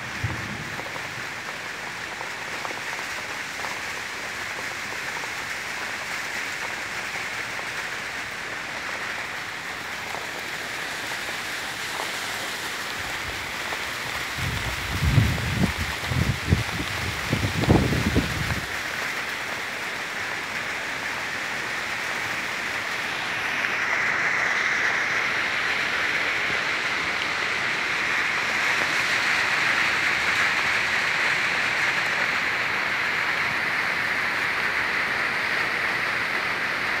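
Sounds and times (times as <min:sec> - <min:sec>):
rain falling on garden and pond: 0:00.0 - 0:37.0.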